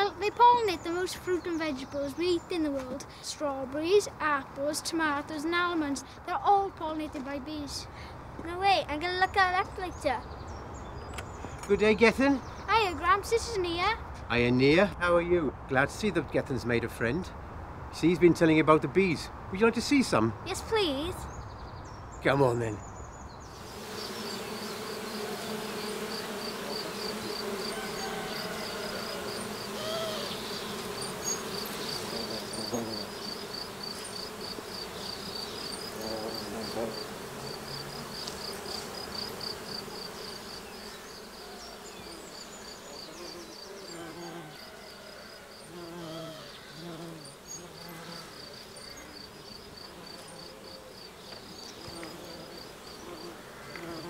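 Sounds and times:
bees buzzing: 0.0s - 7.8s, 23.4s - 54.0s.

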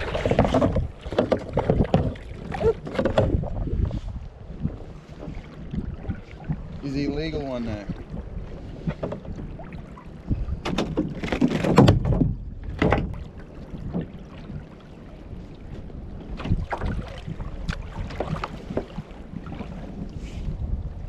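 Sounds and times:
water slapping against hull: 0.0s - 21.0s
sharp knocks and clatter: 0.2s - 3.4s, 10.6s - 13.2s.

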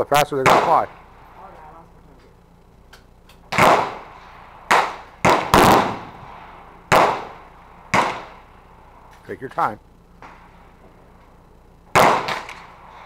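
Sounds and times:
rifle shots: 0.4s - 1.0s, 3.5s - 8.4s, 11.9s - 13.0s.

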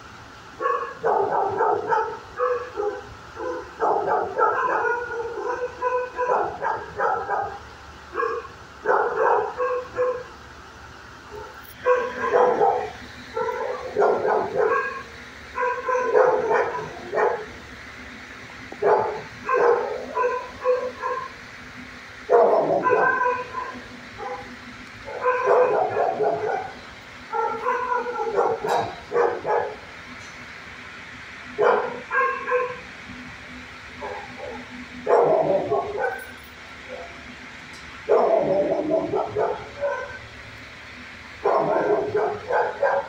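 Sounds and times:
dog barking: 0.6s - 10.3s, 11.3s - 17.6s, 18.8s - 21.4s, 22.3s - 29.8s, 31.6s - 32.8s, 34.0s - 37.2s, 38.1s - 40.2s, 41.4s - 43.0s.

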